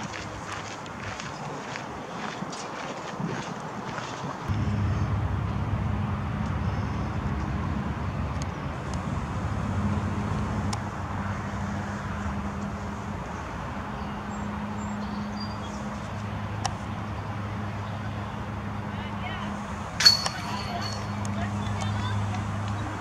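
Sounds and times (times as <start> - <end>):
outdoor rumble: 4.5 - 12.8
distant engine drone: 4.5 - 23.0.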